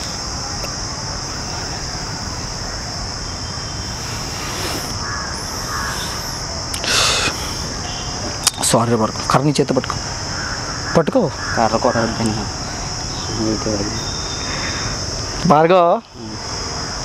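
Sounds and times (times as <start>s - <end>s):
constant high hiss: 0.0s - 17.0s
brief harsh burst: 3.8s - 7.8s.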